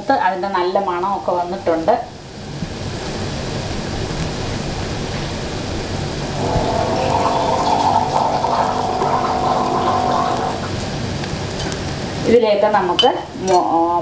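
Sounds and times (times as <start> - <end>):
onions sizzling in oil: 6.3 - 10.9.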